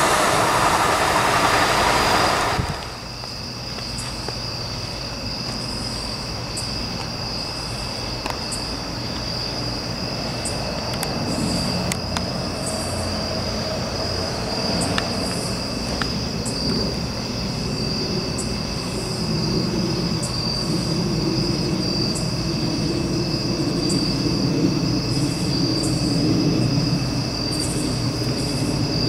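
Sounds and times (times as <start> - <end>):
freight train rumble: 0.0 - 3.7
night insects trilling: 0.0 - 29.0.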